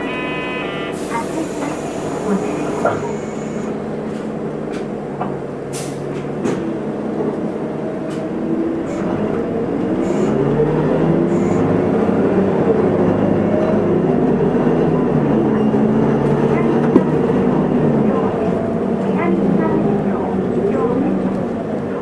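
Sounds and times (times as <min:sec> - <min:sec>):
bus diesel engine: 0:00.0 - 0:22.0.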